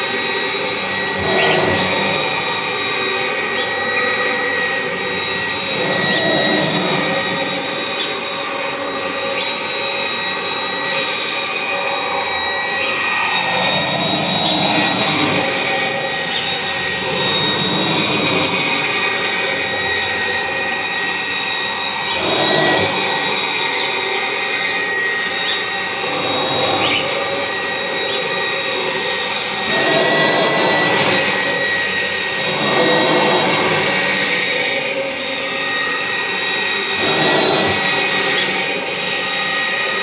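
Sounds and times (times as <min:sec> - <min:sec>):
upright vacuum cleaner whine: 0:00.0 - 0:40.0.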